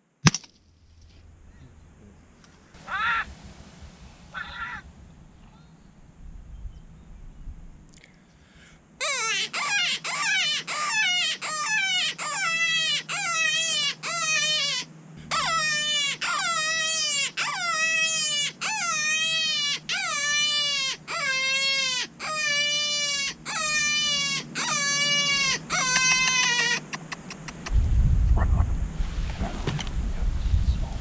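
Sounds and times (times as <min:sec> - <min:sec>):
electronic animal distress calls: 0:09.0 - 0:27.7.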